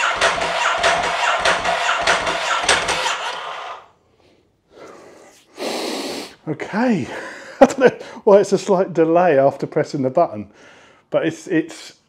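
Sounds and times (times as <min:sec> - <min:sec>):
motorcycle engine cranking: 0:00.0 - 0:03.9.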